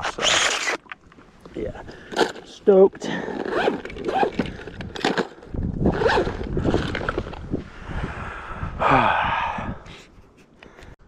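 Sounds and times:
backpack and gear rustling: 0:01.4 - 0:07.6.

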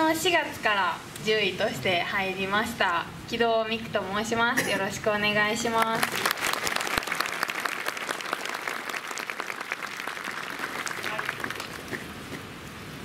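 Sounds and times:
audience applauding: 0:05.8 - 0:12.1.

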